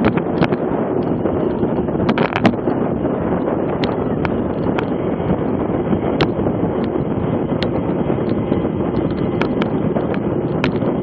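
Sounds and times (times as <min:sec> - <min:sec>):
wind rushing over microphone: 0:00.0 - 0:11.0.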